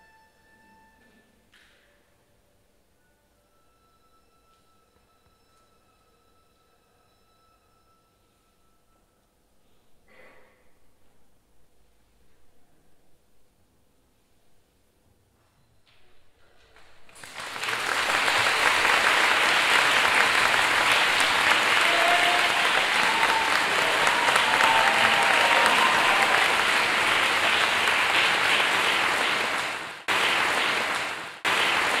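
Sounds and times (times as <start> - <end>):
audience applauding: 17.1 - 32.0.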